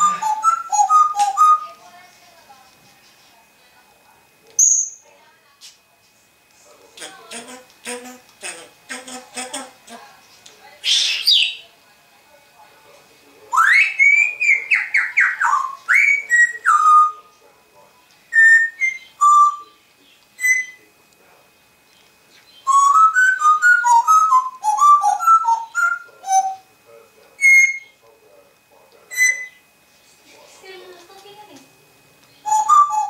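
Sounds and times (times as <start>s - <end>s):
parrot whistling: 0.0s - 1.8s, 10.8s - 11.7s, 13.5s - 17.3s, 18.3s - 19.8s, 20.4s - 20.8s, 22.6s - 26.7s, 27.4s - 28.0s, 29.1s - 29.6s, 32.4s - 33.0s.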